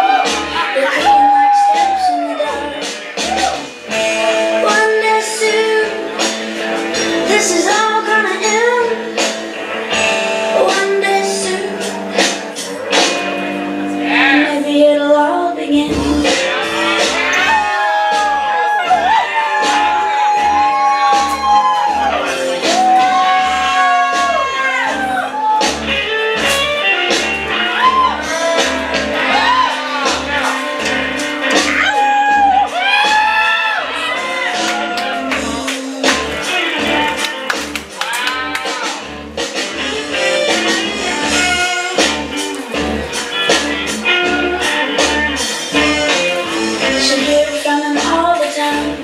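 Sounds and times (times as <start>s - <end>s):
instrumental backing with beats: 0.0s - 14.8s, 15.7s - 49.0s
woman singing: 0.6s - 3.1s, 4.6s - 6.2s, 7.2s - 9.2s, 10.5s - 12.0s, 14.1s - 16.6s, 46.8s - 49.0s
steady bass beat: 15.9s - 38.0s.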